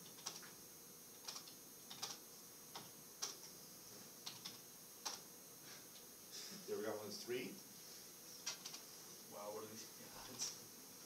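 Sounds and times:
keyboard keystrokes: 0:00.1 - 0:00.5, 0:08.5 - 0:08.8.

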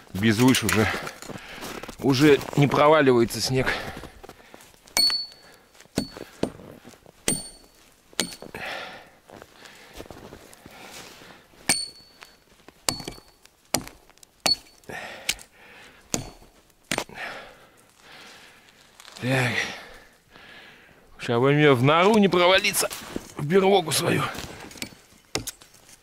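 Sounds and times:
metallic ring of axe head: 0:05.0 - 0:05.4, 0:07.3 - 0:08.5, 0:11.7 - 0:13.4, 0:14.4 - 0:14.8
axe chopping log: 0:12.9 - 0:15.4, 0:16.1 - 0:17.1, 0:24.8 - 0:25.6.

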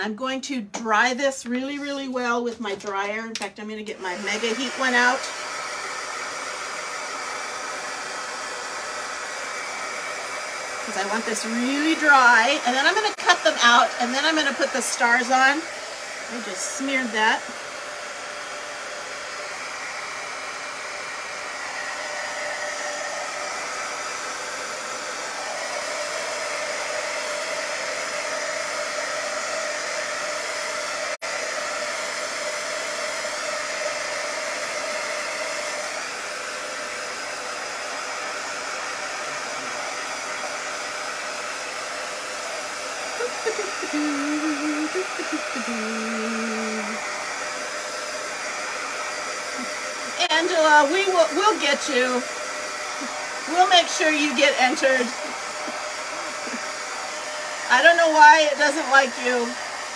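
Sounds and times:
heat tool fan blowing: 0:04.0 - 0:59.9.

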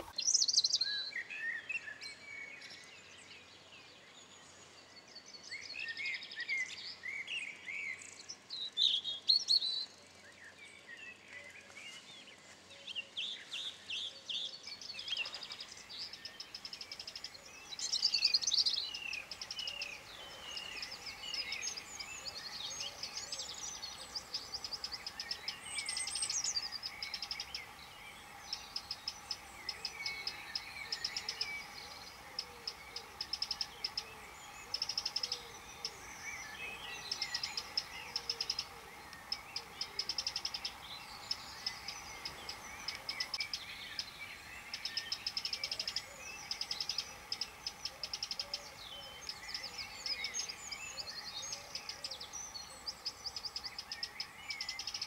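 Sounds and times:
small birds chirping: 0:00.0 - 0:55.0
fast chittering trills: 0:17.8 - 0:48.5.

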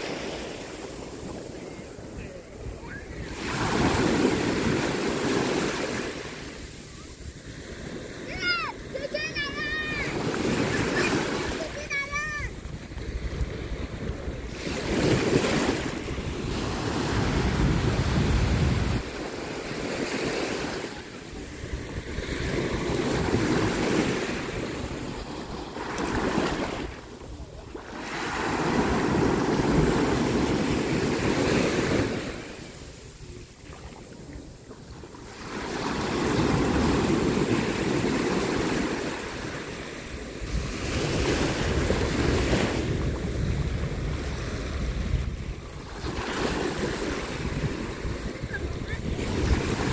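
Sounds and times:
small waves breaking on beach: 0:00.0 - 0:49.9
wind rumble on microphone: 0:12.4 - 0:19.3, 0:40.3 - 0:49.9.

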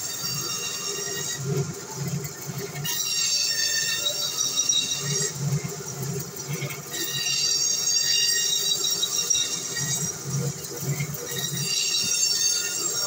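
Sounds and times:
band saw squealing whine: 0:00.0 - 0:01.5, 0:02.8 - 0:05.4, 0:06.9 - 0:13.0.

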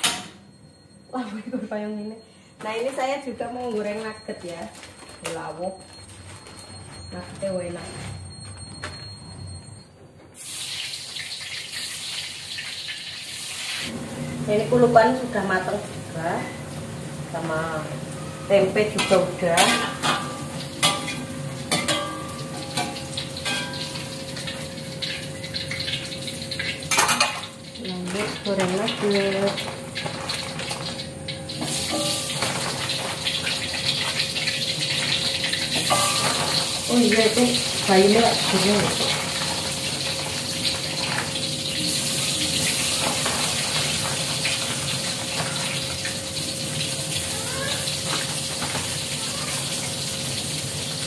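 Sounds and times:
food sizzling in hot oil: 0:10.4 - 0:51.0.

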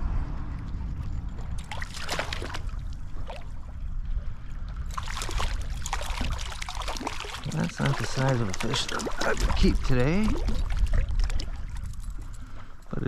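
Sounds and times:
wind buffeting microphone: 0:00.0 - 0:13.0
stream water rushing: 0:04.9 - 0:10.3.

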